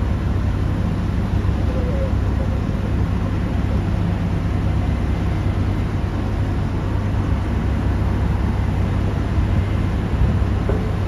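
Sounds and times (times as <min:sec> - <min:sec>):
heavy diesel machinery drone: 0:00.0 - 0:11.0.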